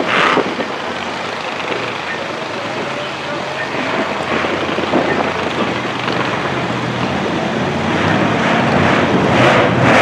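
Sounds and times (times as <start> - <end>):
truck engine running hard: 0.0 - 10.0.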